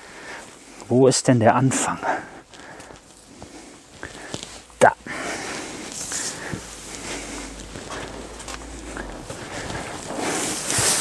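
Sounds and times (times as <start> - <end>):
plastic wrapping rustling and crinkling: 2.4 - 4.8, 5.5 - 11.0.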